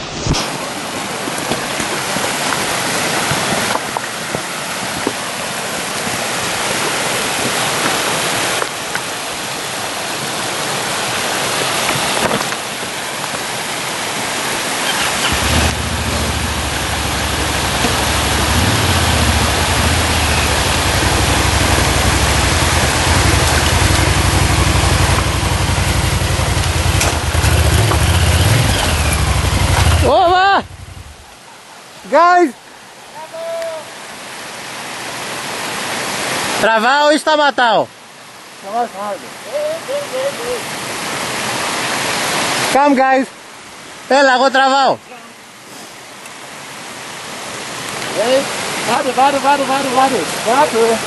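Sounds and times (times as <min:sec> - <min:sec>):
stream water rushing over rocks: 0:00.0 - 0:51.0
motorcycle engine running: 0:15.2 - 0:31.2.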